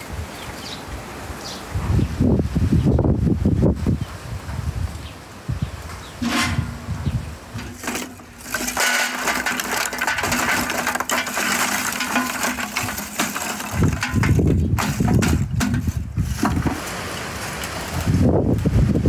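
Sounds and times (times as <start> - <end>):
charcoal clattering into metal brazier: 6.2 - 17.9.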